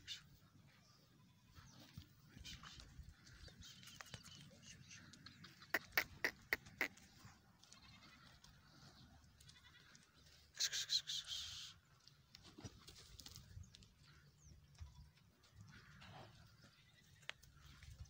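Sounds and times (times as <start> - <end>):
small animal bleating: 1.2 - 1.7, 7.6 - 8.6, 9.3 - 11.5, 14.8 - 15.2.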